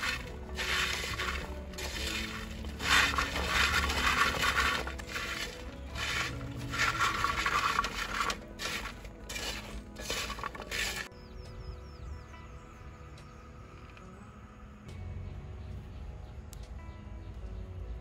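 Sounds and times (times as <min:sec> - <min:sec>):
fruit pieces clattering in clay pot: 0:00.0 - 0:11.1.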